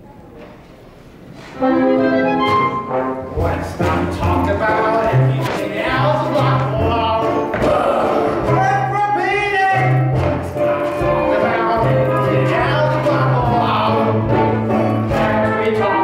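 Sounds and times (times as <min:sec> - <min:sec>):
pit orchestra playing: 0:01.6 - 0:07.5, 0:08.2 - 0:16.0
cast voices singing: 0:03.3 - 0:16.0.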